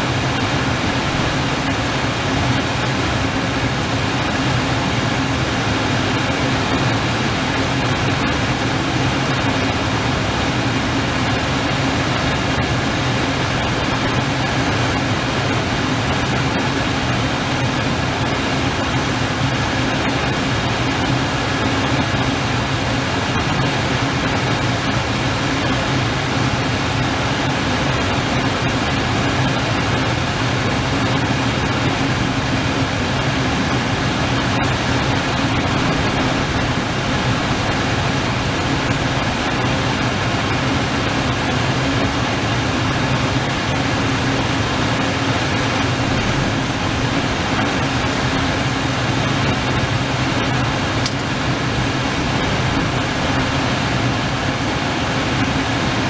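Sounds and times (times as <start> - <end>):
heavy surf: 0.0 - 56.0
storm wind roaring: 31.8 - 42.0, 44.8 - 48.6, 49.3 - 54.3.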